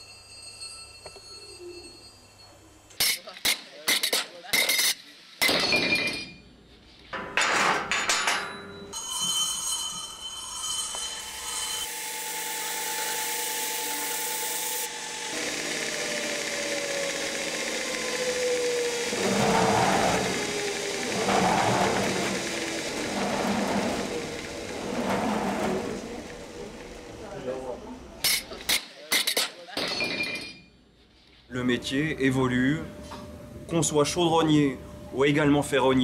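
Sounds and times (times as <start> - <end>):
belt grinder whining: 10.5 - 28.8
scraping bursts: 15.2 - 27.3.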